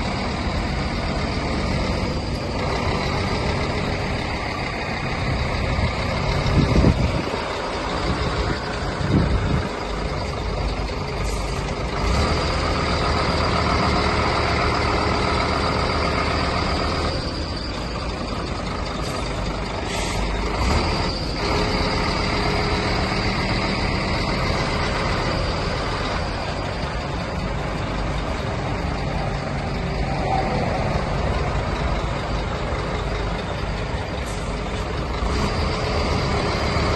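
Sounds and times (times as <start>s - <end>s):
lorry diesel engine: 0.0s - 36.9s
air brakes hissing: 11.2s - 11.8s, 18.9s - 20.6s, 34.2s - 35.0s.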